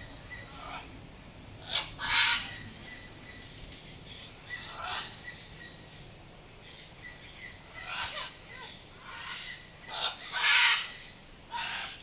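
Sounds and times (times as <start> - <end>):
macaws squawking: 1.6 - 3.5, 4.2 - 5.8, 6.7 - 12.0.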